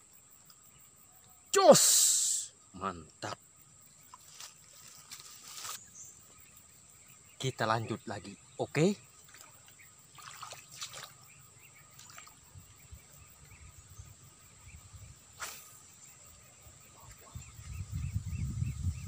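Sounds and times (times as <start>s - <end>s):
faint chirps: 0.0s - 19.0s
wind buffeting microphone: 17.2s - 19.0s.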